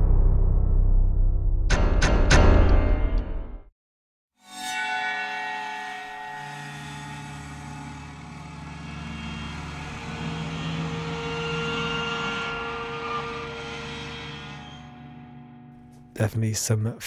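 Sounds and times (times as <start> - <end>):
droning synth zither chord: 4.4 - 16.2.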